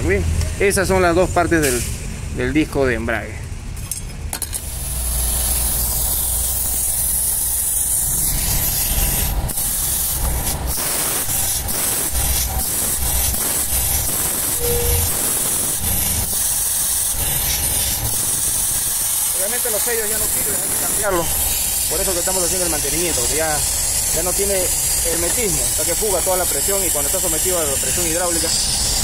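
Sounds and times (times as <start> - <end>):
loud steady hissing: 4.6 - 29.0
low rumble: 12.2 - 16.3.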